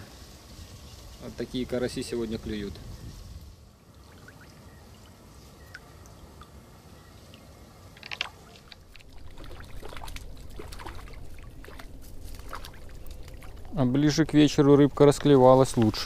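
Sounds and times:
fish splashing at surface: 8.0 - 13.7.

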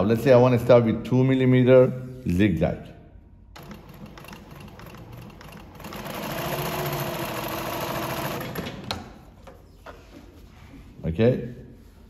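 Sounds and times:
sewing machine running: 3.6 - 9.0.

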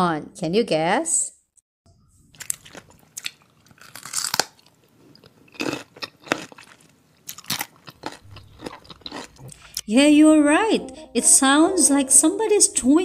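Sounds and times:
person chewing crunchy food: 2.3 - 9.9.

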